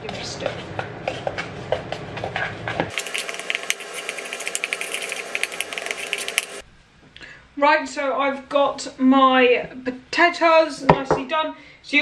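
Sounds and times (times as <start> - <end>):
spoon stirring dry oats: 2.9 - 6.6.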